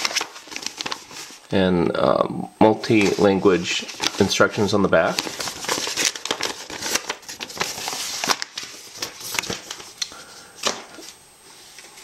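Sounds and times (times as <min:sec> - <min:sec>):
paper rustling and crinkling: 0:00.0 - 0:01.5, 0:02.8 - 0:12.0.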